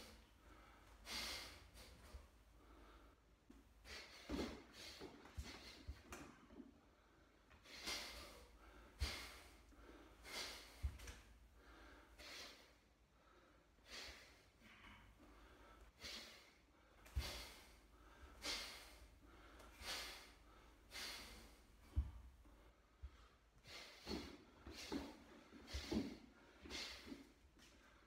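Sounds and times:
man's sharp breaths: 0.0s - 28.0s.

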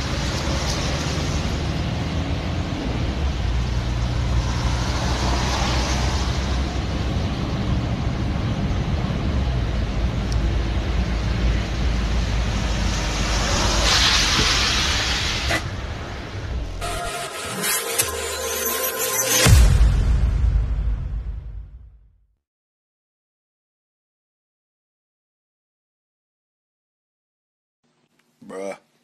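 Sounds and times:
tyres hissing on wet road: 0.0s - 7.7s, 8.6s - 16.6s
engine and road drone: 0.0s - 20.8s.

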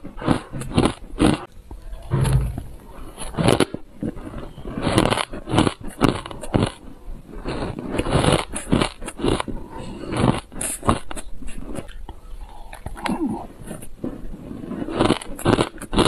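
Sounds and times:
crunching frozen ice: 3.2s - 6.8s, 14.5s - 16.0s.

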